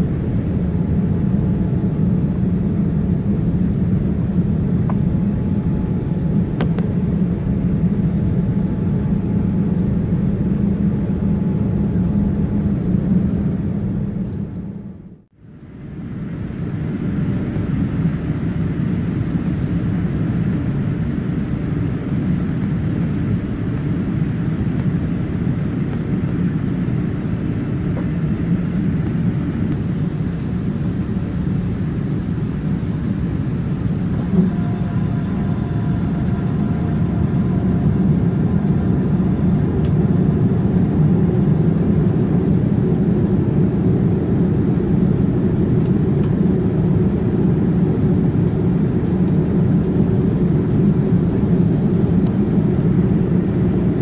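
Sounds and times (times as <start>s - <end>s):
faint steady whining tones: 0.0s - 54.0s
jet engine roar: 0.0s - 54.0s
airflow past fuselage: 15.8s - 53.9s.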